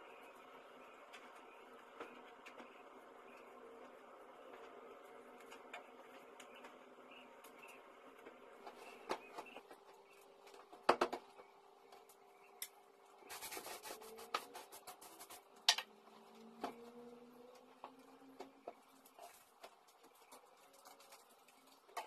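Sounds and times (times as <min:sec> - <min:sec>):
faint steady hum: 0:00.0 - 0:22.0
short rubbing sound: 0:13.3 - 0:15.4.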